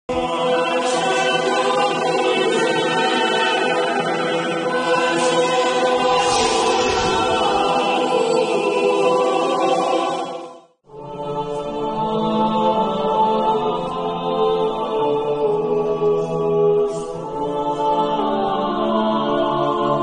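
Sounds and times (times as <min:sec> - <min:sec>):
choir singing held chords: 0:00.1 - 0:20.0
noisy sweeping sound: 0:05.0 - 0:10.0.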